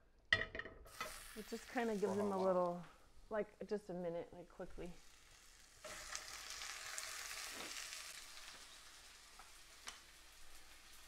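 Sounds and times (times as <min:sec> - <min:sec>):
oil sizzling in a frying pan: 0:00.9 - 0:03.3, 0:04.9 - 0:11.0.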